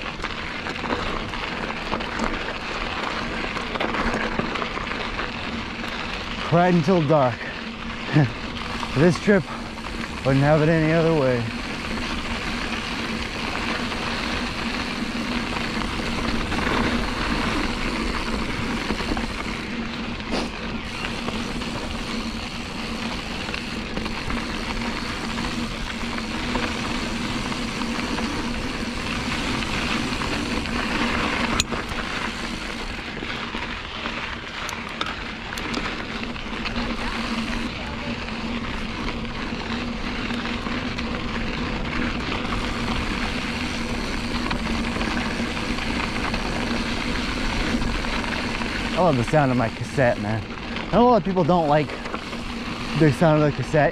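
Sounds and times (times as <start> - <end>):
bike hub buzzing freewheeling: 0.0 - 53.9
tyre and wind noise: 0.0 - 53.9.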